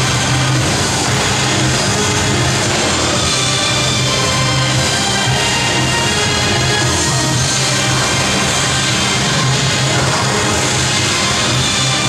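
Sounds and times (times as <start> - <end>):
dance music with pulsing bass: 0.0 - 12.0.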